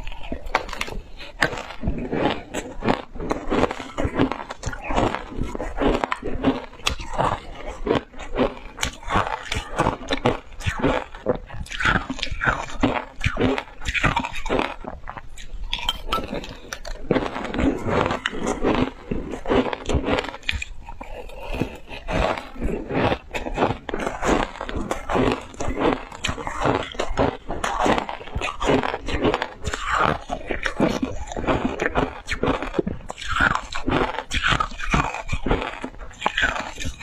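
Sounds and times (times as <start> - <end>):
crunching and chewing ice: 0.0 - 37.0
metal spoon scraping glass mug: 15.7 - 16.4.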